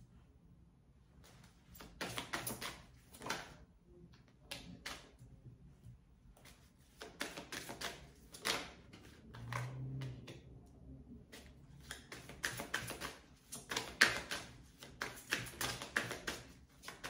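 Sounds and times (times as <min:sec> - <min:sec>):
cards being shuffled: 0:01.2 - 0:03.6, 0:06.4 - 0:10.3, 0:11.4 - 0:17.0.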